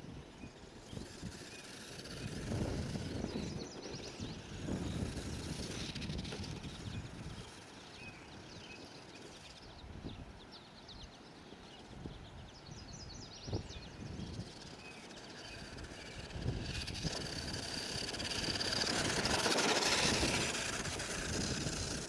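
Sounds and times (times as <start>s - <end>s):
wind buffeting microphone: 0.0s - 10.4s, 12.0s - 22.0s
small birds chirping: 0.0s - 22.0s
bird trill: 10.5s - 22.0s.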